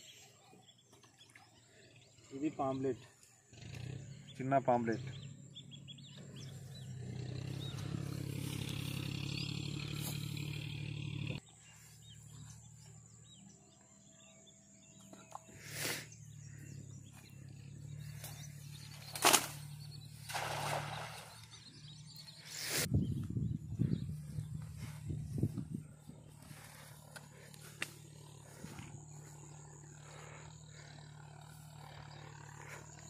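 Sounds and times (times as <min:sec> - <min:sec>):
net splashing into water: 0:19.1 - 0:19.6, 0:20.2 - 0:21.6
wind rumble: 0:22.9 - 0:26.6.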